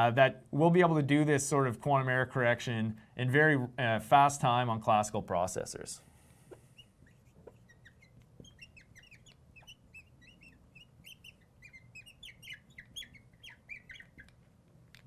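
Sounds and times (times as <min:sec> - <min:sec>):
marker squeaking on glass: 0:06.5 - 0:14.4.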